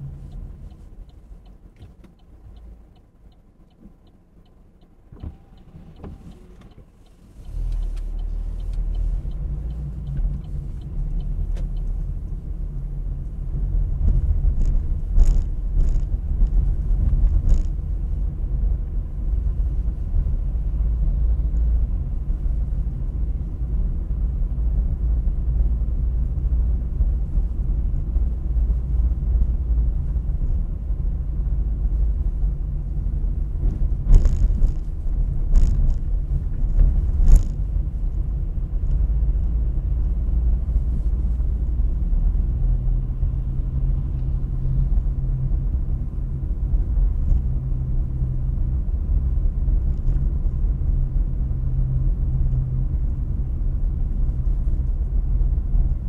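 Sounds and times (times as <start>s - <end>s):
light regular ticking: 0.0s - 13.6s
car engine and road rumble: 0.0s - 56.0s.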